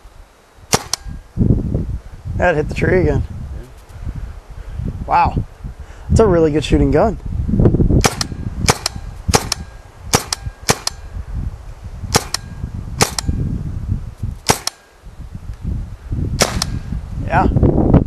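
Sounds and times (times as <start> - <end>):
paintball rifle pops: 0.7 - 1.2, 8.0 - 11.0, 12.1 - 13.3, 14.4 - 14.8, 16.4 - 16.8.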